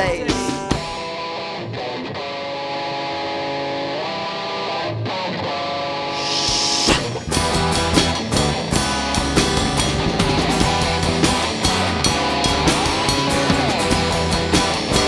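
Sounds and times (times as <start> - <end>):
guitars ringing chords: 0.0 - 15.0
live rock band playing: 0.0 - 15.0
hissing swell: 6.1 - 7.9.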